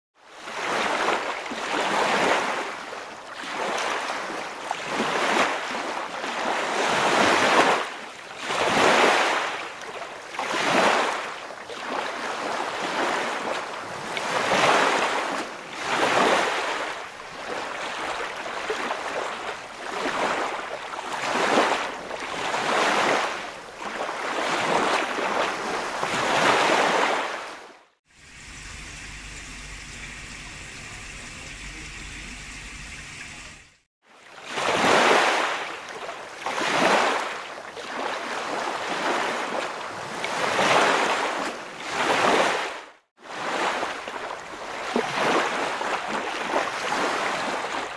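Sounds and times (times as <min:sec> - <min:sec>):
surf-like water noise: 0:00.2 - 0:47.9
steady hiss: 0:28.2 - 0:33.7.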